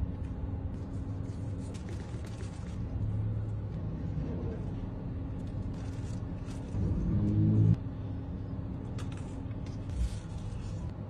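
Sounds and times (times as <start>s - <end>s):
low humming tone: 2.8s - 11.0s.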